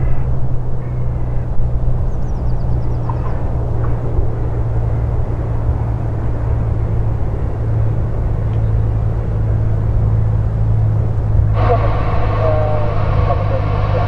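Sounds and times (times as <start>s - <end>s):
propeller plane engine drone: 0.0s - 14.0s
higher steady tones: 11.1s - 14.0s.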